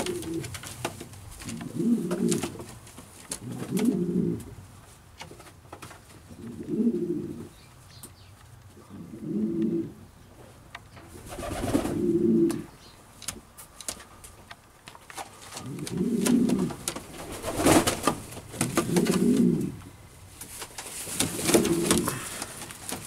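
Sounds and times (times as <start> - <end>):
pigeon cooing: 0.0 - 0.5, 1.4 - 2.5, 3.4 - 4.6, 6.3 - 7.5, 8.8 - 10.0, 11.3 - 12.7, 15.6 - 16.8, 18.6 - 19.9, 21.3 - 22.6.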